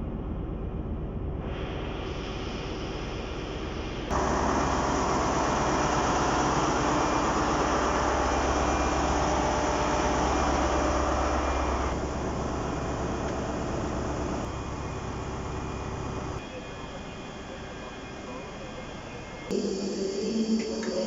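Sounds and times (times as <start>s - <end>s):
rush of cooling air: 1.4s - 16.4s
diesel engine idling: 4.1s - 16.4s.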